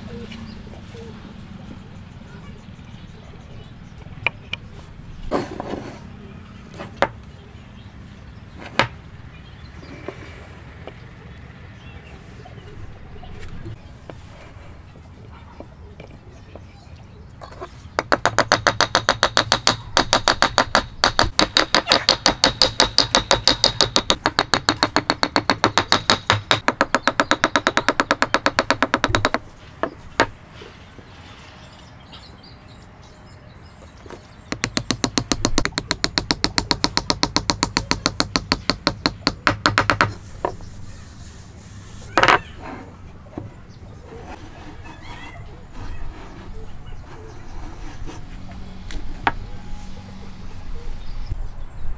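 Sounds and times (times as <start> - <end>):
hammer tapping on wood: 34.5 - 40.6.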